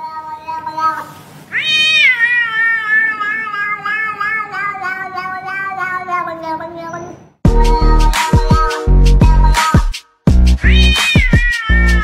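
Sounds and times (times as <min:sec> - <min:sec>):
cat meowing: 0:00.0 - 0:07.3, 0:10.6 - 0:12.0.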